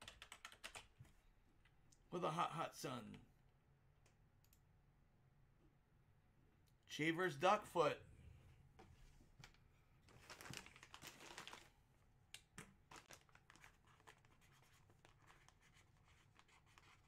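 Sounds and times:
plastic bag crinkling: 10.1s - 11.8s, 12.8s - 14.2s.

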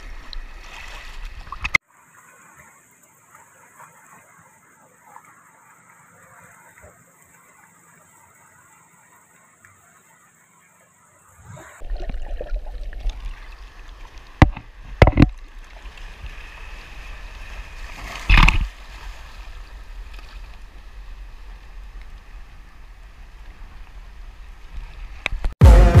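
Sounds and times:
waves breaking over rocks: 11.3s - 25.6s
loud thumps: 14.4s - 15.4s.

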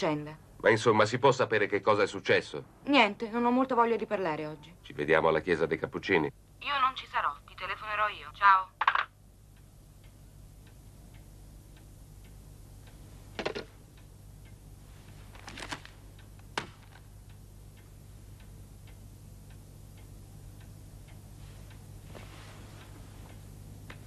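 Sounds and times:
knocks of objects being handled: 8.8s - 9.1s, 13.3s - 13.8s
clock ticking: 13.8s - 14.7s, 17.2s - 21.9s.

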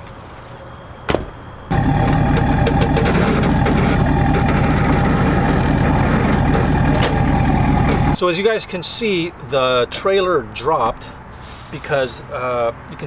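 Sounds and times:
pickup engine starting and idling: 1.7s - 8.2s.

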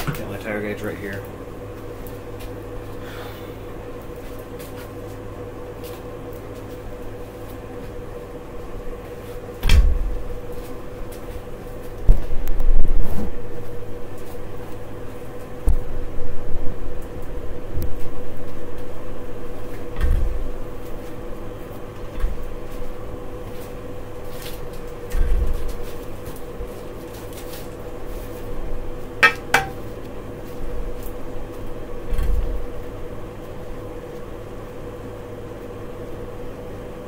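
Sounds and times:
steady hum: 0.0s - 37.0s
bike wheel knocks and thumps: 29.2s - 29.8s.

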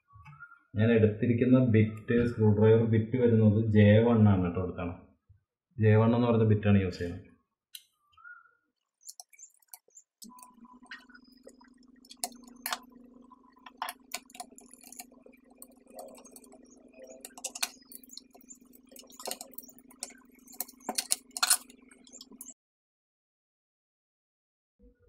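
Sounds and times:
steady low hum: 9.2s - 22.6s
screws clicking on plastic: 13.7s - 22.5s.

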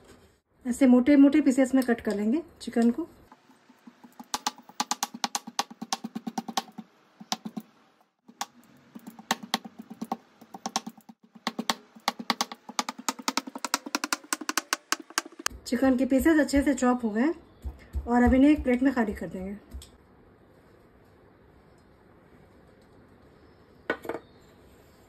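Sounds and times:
knife chopping on wooden board: 3.8s - 7.7s, 8.3s - 15.5s.

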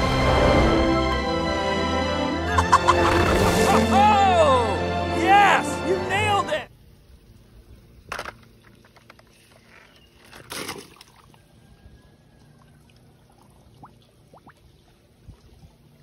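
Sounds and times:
toy splashing into pool: 10.2s - 11.3s.

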